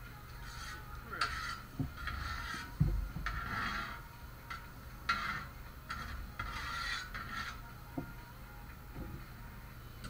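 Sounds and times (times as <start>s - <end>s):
metal spatula scraping griddle: 0.4s - 7.7s.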